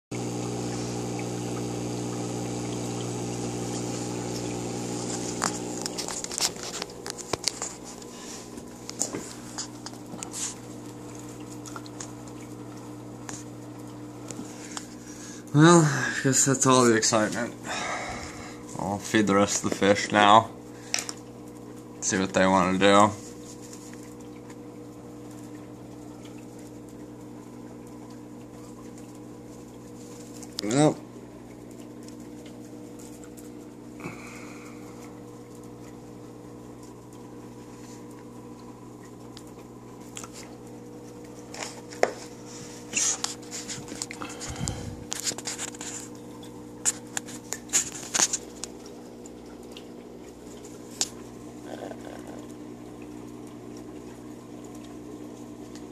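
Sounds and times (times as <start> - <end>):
water bubbling: 0.1 - 16.2, 48.4 - 55.9
aquarium air pump humming: 0.1 - 55.9.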